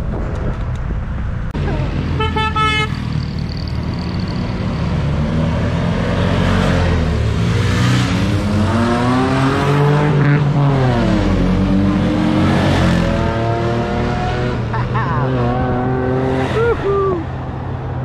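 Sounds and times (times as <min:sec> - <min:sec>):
off-road vehicle engine revving: 0:03.1 - 0:14.6.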